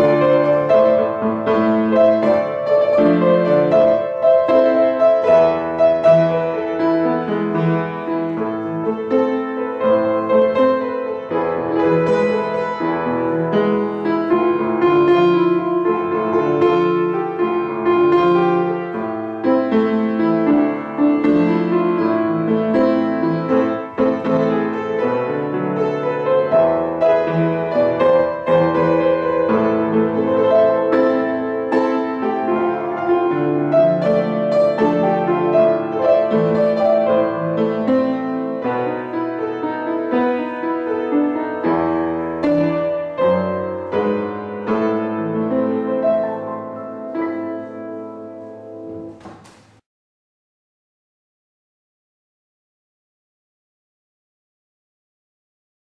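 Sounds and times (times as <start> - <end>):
piano playing: 0.0 - 49.8.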